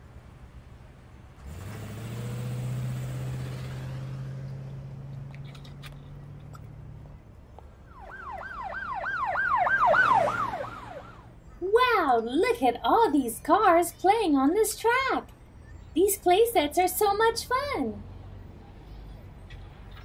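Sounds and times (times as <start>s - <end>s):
low engine hum: 0.0s - 11.6s
police siren yelp: 7.9s - 12.2s.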